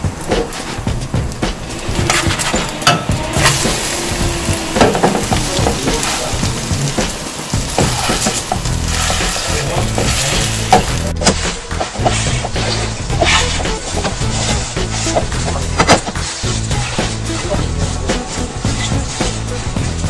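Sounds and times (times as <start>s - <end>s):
pancake sizzling in oil: 0.0s - 11.2s
spatula scraping and tapping pan: 0.2s - 16.2s.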